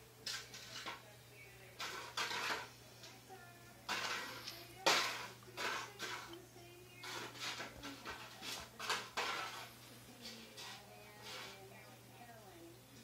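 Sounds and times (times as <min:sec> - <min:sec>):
bowl scraping on stone tiles: 0:01.8 - 0:02.8, 0:03.9 - 0:06.4, 0:07.0 - 0:11.8.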